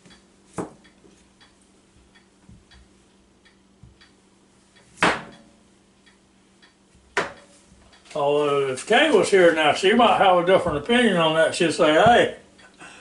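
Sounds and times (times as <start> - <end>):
faint even ticking: 0.1 - 8.2.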